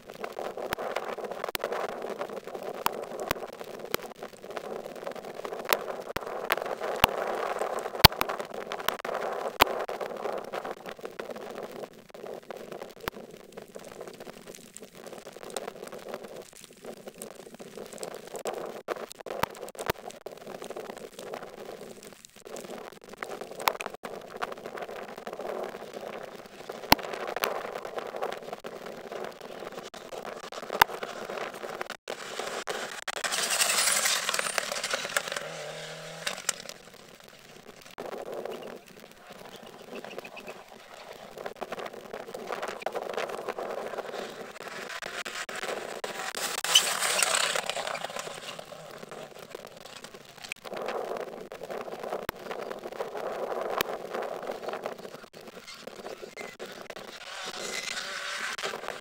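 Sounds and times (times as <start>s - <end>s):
sharp cracks: 0.0s - 59.0s
tyres rushing on loose surface: 32.1s - 37.2s, 43.9s - 50.3s
rally car engine drone: 32.2s - 37.0s, 43.9s - 50.0s, 56.4s - 59.0s
distant car engine: 32.4s - 36.9s.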